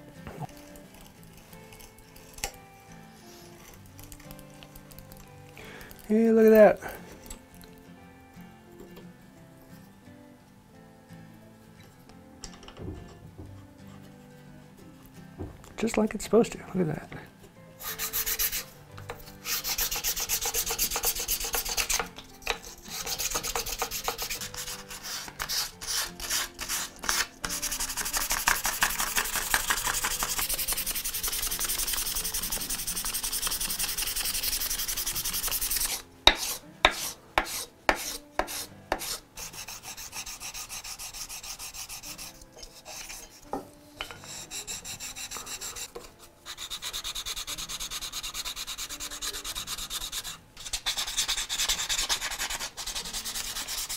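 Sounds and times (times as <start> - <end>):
hand sanding strokes: 17.8 - 43.4, 44.0 - 53.9.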